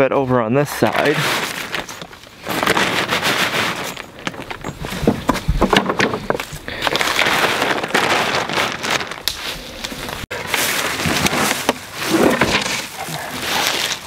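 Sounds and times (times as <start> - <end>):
plastic tarp crinkling and rustling: 0.8 - 14.0
wooden pallet picked up: 1.8 - 6.7, 10.4 - 14.0.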